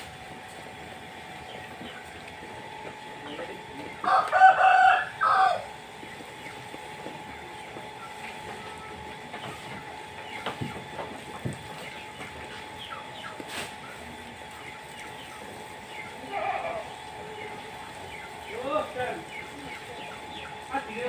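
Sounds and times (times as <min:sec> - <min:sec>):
sheep feeding on grass: 0:00.0 - 0:21.0
sheep bleating: 0:16.2 - 0:17.0.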